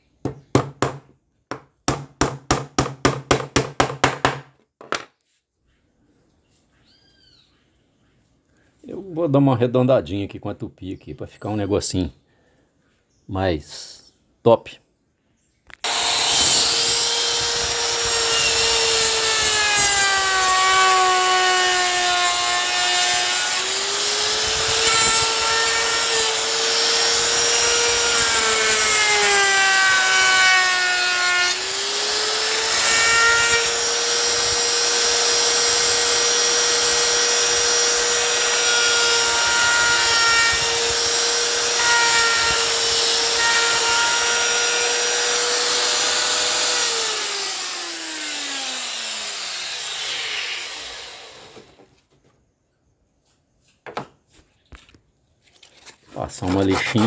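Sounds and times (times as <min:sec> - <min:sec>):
router motor whine cutting wood: 0:15.8 - 0:51.8.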